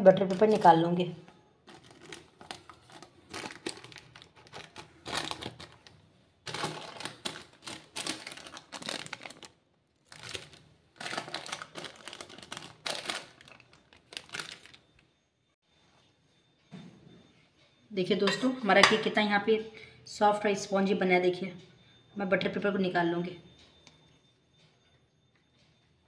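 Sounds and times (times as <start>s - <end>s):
baking parchment crinkling: 0.1s - 1.0s, 1.6s - 15.0s.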